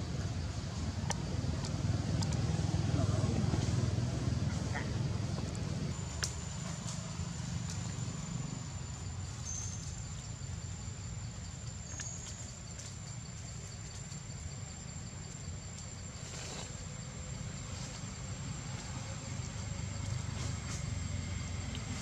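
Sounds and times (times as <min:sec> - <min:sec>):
low rumble: 0:00.0 - 0:12.0.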